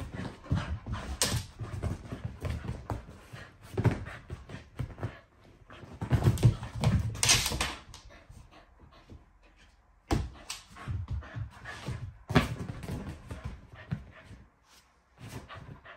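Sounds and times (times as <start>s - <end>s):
puppy scrabbling on leather sofa: 0.0s - 7.8s.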